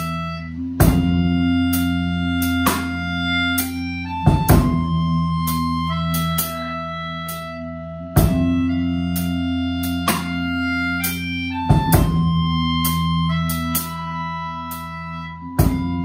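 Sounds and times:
bass guitar: 0:00.0 - 0:16.0
ringing guitar chords: 0:00.0 - 0:16.0
drum and cymbal hits: 0:00.8 - 0:03.7, 0:04.3 - 0:05.7, 0:08.2 - 0:08.6, 0:11.6 - 0:13.0, 0:15.6 - 0:16.0.

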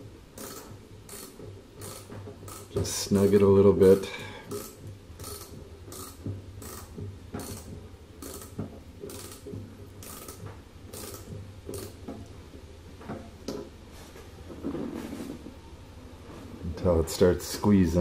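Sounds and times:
hand ratchet clicking: 0:00.4 - 0:12.0.

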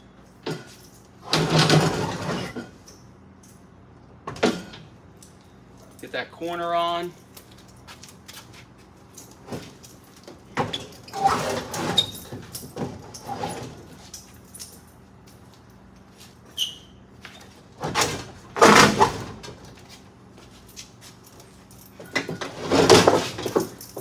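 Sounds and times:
brief squeak: 0:16.5 - 0:17.0.

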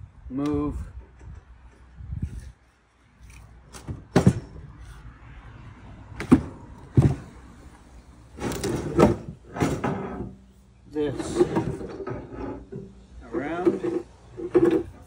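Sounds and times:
scraping and clattering: 0:08.4 - 0:10.4, 0:11.1 - 0:15.0.

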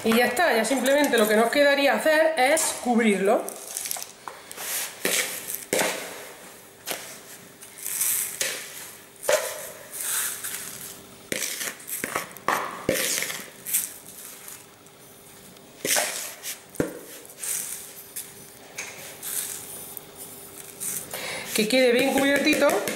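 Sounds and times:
gritty hiss of salt pouring: 0:07.2 - 0:12.0, 0:13.0 - 0:15.2, 0:15.9 - 0:21.6.

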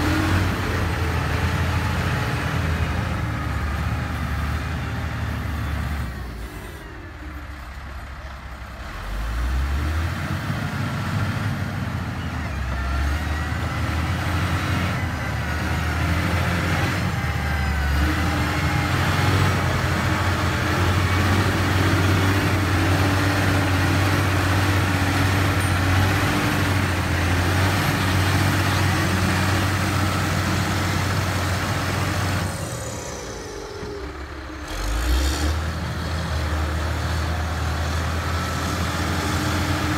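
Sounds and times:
diesel engine running under load: 0:00.0 - 0:39.9.

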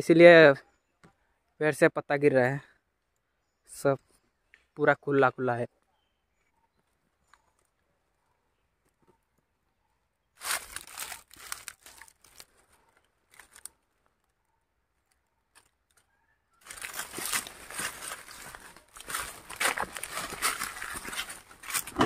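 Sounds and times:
footsteps crunching through dry leaves: 0:10.4 - 0:12.6, 0:16.6 - 0:22.0
plastic sacks crinkling and rustling: 0:10.4 - 0:13.7, 0:16.6 - 0:22.0.

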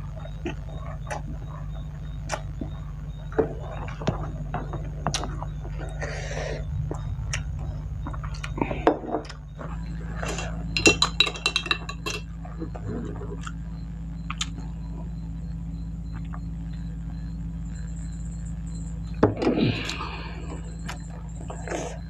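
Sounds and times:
steady low hum: 0:00.0 - 0:22.0
glass and ceramic tableware clinking: 0:10.8 - 0:12.3.

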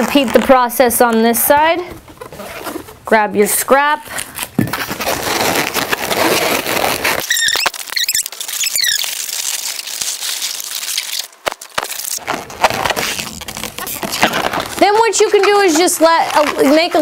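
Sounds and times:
balloon rubbing and creaking: 0:01.8 - 0:03.1, 0:04.4 - 0:17.0
balloon squeaks: 0:04.4 - 0:17.0.

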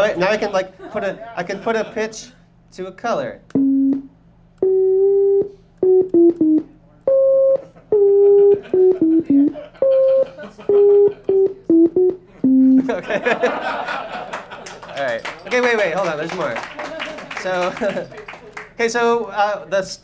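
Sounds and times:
clicks at note edges: 0:03.4 - 0:13.0
short synth sine tones: 0:03.5 - 0:13.0.

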